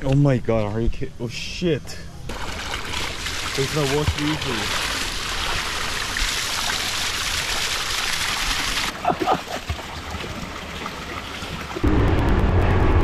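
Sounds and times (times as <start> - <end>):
rush of running water: 2.3 - 11.8.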